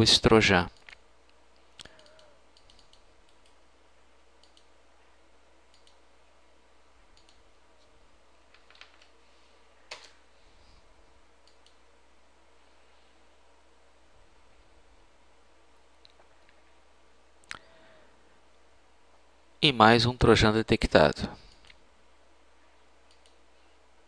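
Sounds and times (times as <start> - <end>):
low steady hum: 0.0 - 24.0
mouse and keyboard clicks: 1.8 - 3.6.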